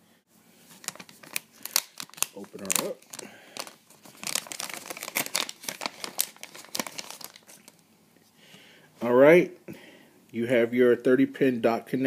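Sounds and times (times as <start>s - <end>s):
plastic packaging crinkling and tearing: 0.7s - 7.8s.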